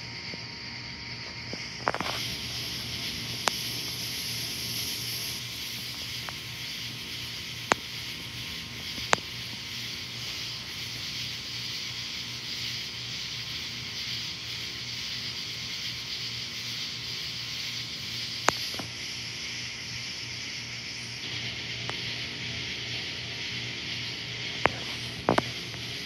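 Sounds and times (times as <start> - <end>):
high hiss of night ambience: 0.0 - 26.0
sharp clicks: 7.6 - 8.0, 18.4 - 18.9.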